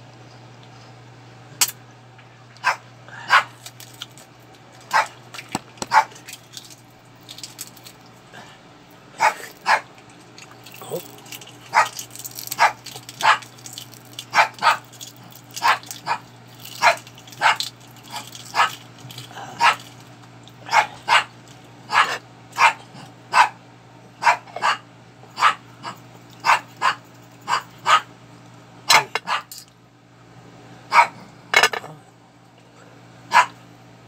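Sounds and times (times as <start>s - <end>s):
dog barking: 2.6s - 3.6s, 4.9s - 5.2s, 5.8s - 6.2s, 9.2s - 9.9s, 11.7s - 13.5s, 14.3s - 14.9s, 15.6s - 18.8s, 19.6s - 19.8s, 20.7s - 21.3s, 21.9s - 23.6s, 24.2s - 24.8s, 25.4s - 28.1s, 28.9s - 29.5s, 30.9s - 31.3s, 33.3s - 33.6s.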